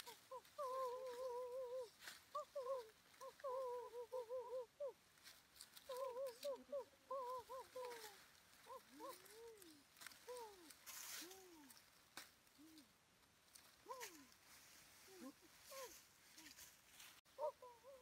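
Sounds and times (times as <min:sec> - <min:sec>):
leaves crackling: 0:00.0 - 0:18.0
bird warbling: 0:05.9 - 0:10.5.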